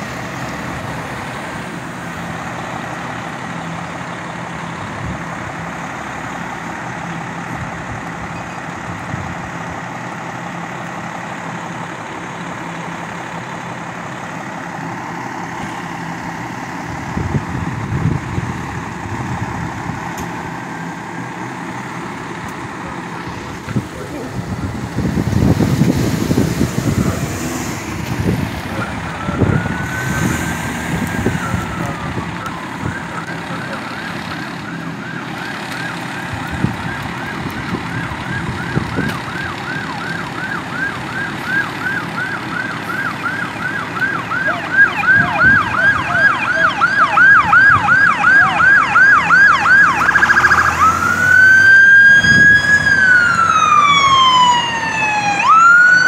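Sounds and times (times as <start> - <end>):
ambulance siren wailing and yelping: 22.8 - 56.0.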